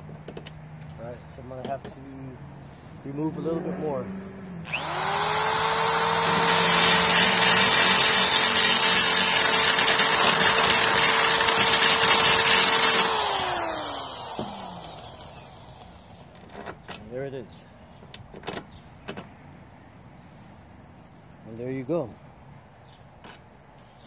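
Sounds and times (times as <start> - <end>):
drill bit grinding metal: 4.7 - 15.8
electric drill motor whine: 4.7 - 16.2.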